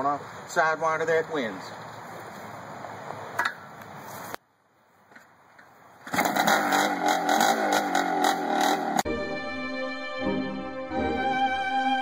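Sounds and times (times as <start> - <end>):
dirt bike engine starting: 6.0 - 9.0
dirt bike engine revving: 6.1 - 9.1.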